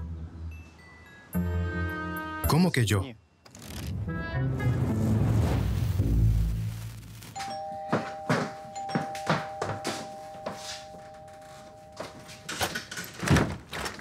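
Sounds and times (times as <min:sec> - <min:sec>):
footsteps approaching: 0:07.4 - 0:12.7
two-tone doorbell ringing: 0:07.4 - 0:12.8.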